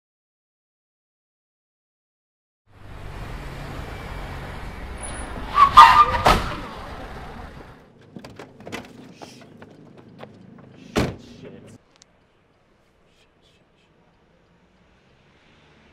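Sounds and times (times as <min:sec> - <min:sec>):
tire screech: 0:02.7 - 0:07.8
car engine running: 0:02.7 - 0:11.8.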